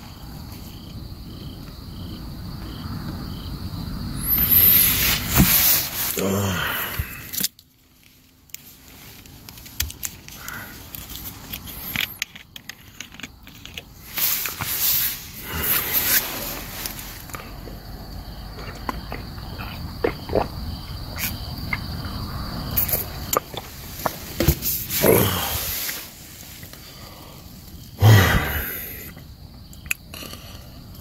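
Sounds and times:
high insect trill: 0.0 - 9.4, 10.2 - 31.0
rustling and handling gear: 7.0 - 17.4.

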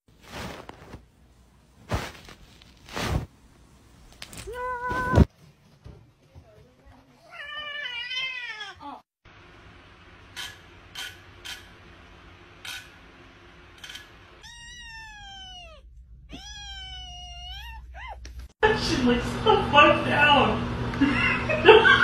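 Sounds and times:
cat meowing: 14.4 - 18.2.

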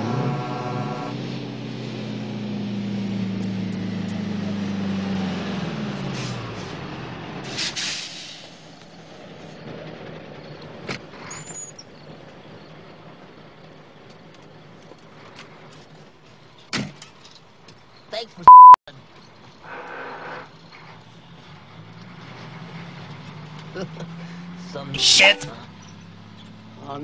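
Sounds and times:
truck engine drone: 0.0 - 10.9, 20.5 - 26.8
air brakes hissing: 7.4 - 8.6.

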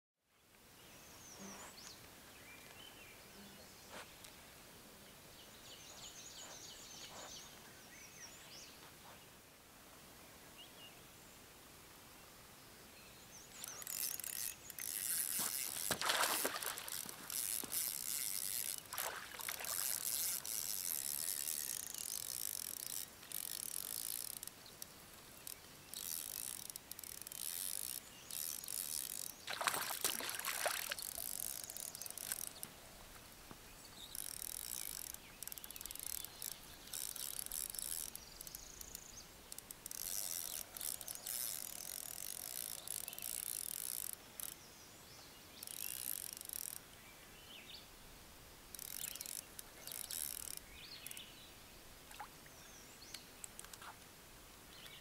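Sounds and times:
fishing reel ratcheting clicks: 13.6 - 32.7, 34.0 - 44.6, 45.6 - 46.8, 48.7 - 51.2.

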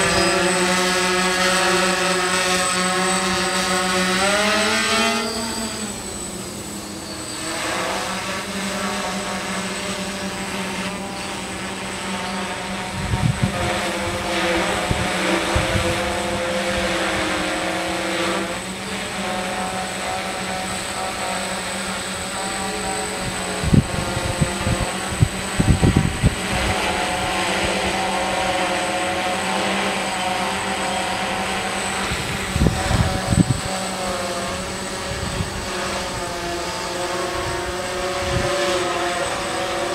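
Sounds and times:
drone propellers whining: 0.0 - 39.9
wind rumbling on microphone: 12.6 - 17.5, 22.6 - 28.7, 31.9 - 39.0.

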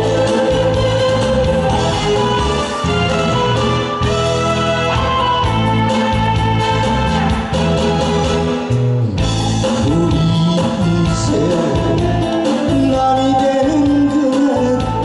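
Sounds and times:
instrumental music: 0.0 - 15.0
man singing into a microphone: 9.6 - 15.0.

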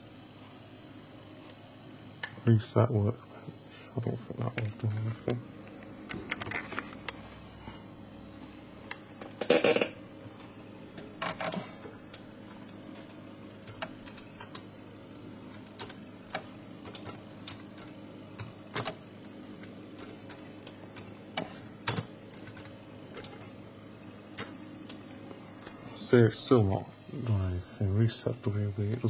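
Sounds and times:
faint steady hum: 0.0 - 29.0
keyboard keys clicking: 11.2 - 14.7, 15.5 - 23.5.

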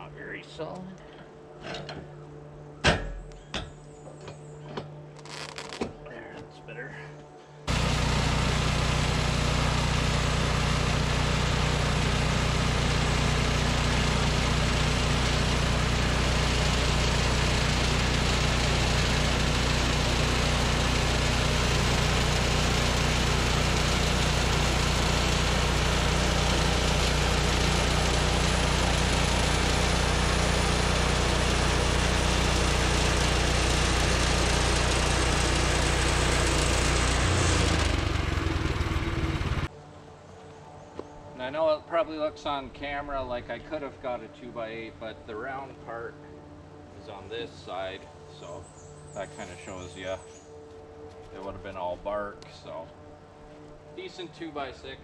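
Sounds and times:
bandsaw mill engine running: 7.7 - 39.7.

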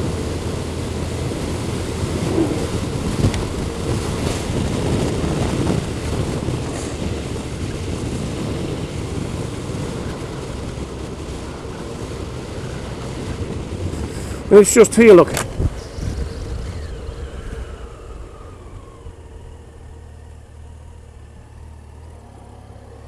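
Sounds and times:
wind noise on microphone: 0.0 - 19.2
motorcycle engine hum: 0.0 - 23.0.

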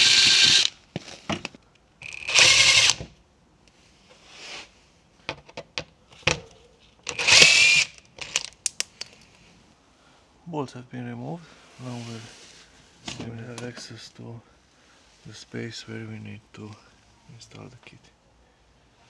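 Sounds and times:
cordless drill whirring: 0.0 - 0.7, 2.0 - 3.1, 7.1 - 8.0.

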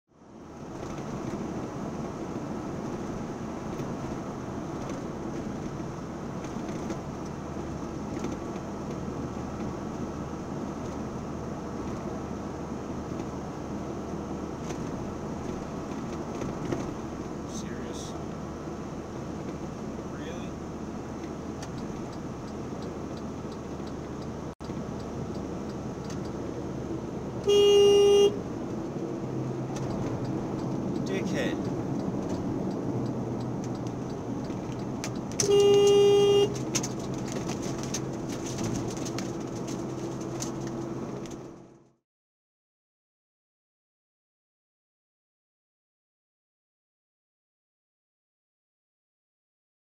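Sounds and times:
truck cab road and engine noise: 0.1 - 42.0
vehicle horn blast: 27.4 - 28.4, 35.4 - 36.6.

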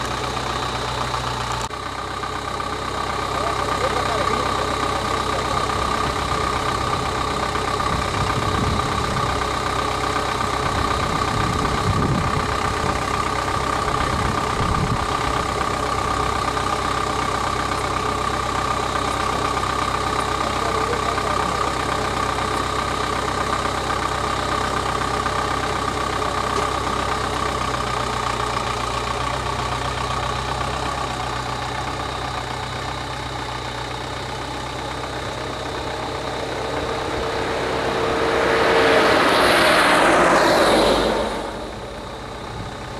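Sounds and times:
low rumbles: 0.0 - 16.5, 33.6 - 42.9
vehicle engine idling: 0.0 - 42.9.

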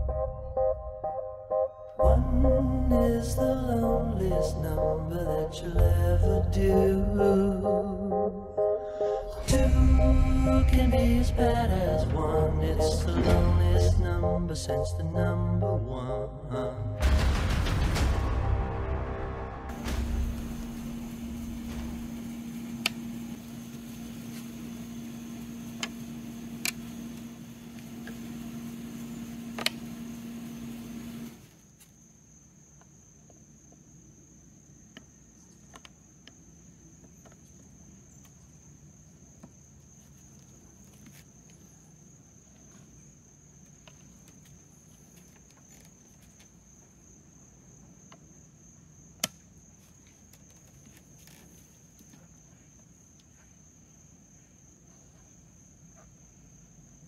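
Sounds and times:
steady low hum: 0.0 - 31.3
high insect drone: 19.7 - 57.0.

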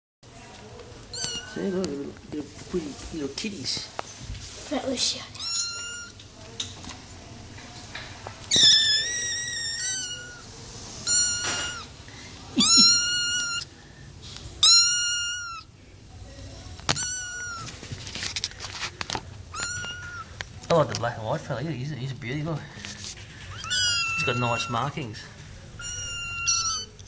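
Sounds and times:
kittens meowing: 1.1 - 2.1, 5.4 - 6.2, 8.5 - 11.9, 12.6 - 13.7, 14.6 - 15.7, 16.9 - 17.8, 19.5 - 20.4, 23.4 - 27.0.

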